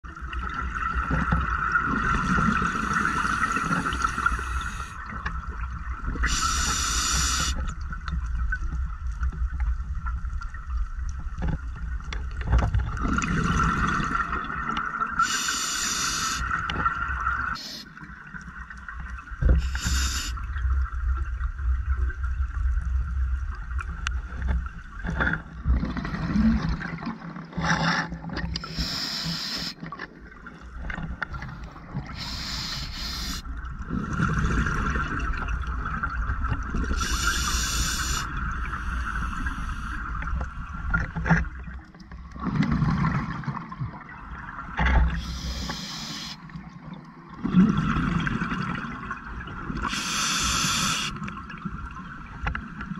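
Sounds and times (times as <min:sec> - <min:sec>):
diver breathing through regulator: 0:06.2 - 0:07.6, 0:15.2 - 0:16.5, 0:19.6 - 0:20.4, 0:28.6 - 0:29.8, 0:32.1 - 0:33.4, 0:37.0 - 0:40.1, 0:45.1 - 0:46.4, 0:49.9 - 0:51.2.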